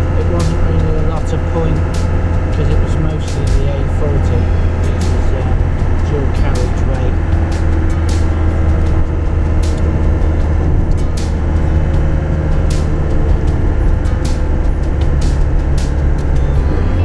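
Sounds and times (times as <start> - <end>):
van engine and road drone: 0.0 - 17.0.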